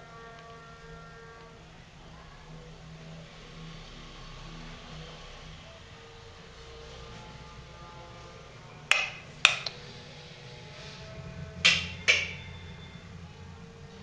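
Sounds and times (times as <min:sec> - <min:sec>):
light switches clicking: 0:08.9 - 0:09.8, 0:11.6 - 0:12.4.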